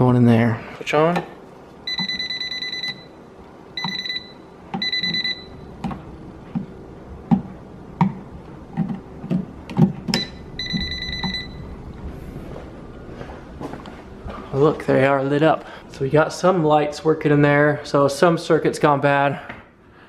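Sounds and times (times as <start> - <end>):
voltage tester rapid beeps: 1.9 - 3.1, 3.8 - 5.5.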